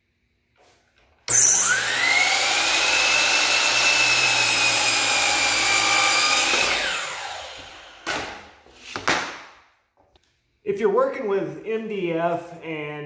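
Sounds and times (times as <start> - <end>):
miter saw whining: 1.3 - 8.1
saw blade cutting wood: 1.3 - 8.3.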